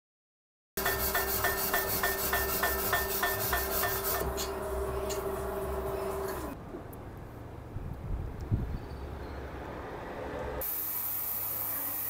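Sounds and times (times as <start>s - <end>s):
wheel rim being scraped: 0.8s - 6.6s
steady motor hum: 1.0s - 6.6s.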